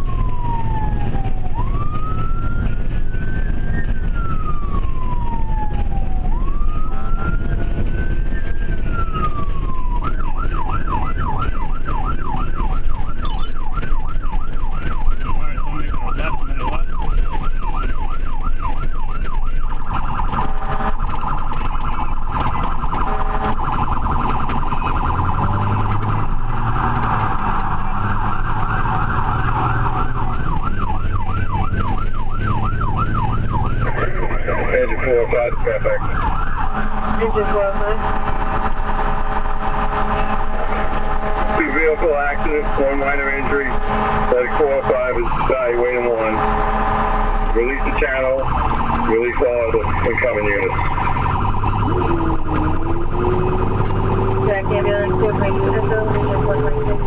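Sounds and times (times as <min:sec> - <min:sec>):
ambulance siren wailing and yelping: 0:00.0 - 0:57.0
road noise: 0:00.0 - 0:57.0.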